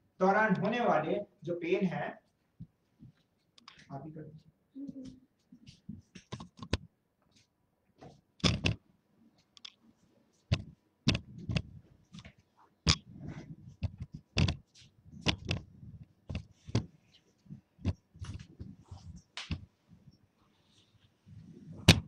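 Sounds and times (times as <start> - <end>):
irregular clicks and knocks: 6.2 - 6.9, 8.0 - 8.8, 9.4 - 9.8, 10.5 - 13.1, 13.7 - 17.0.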